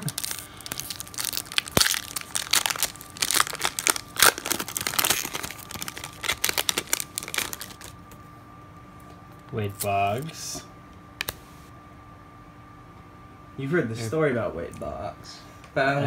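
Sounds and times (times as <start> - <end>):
foil wrapper crinkling and tearing: 0.0 - 8.0.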